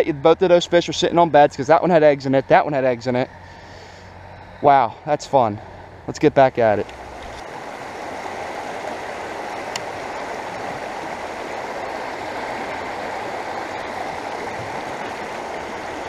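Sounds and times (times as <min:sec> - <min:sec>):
water rushing over rocks: 0:06.1 - 0:16.0.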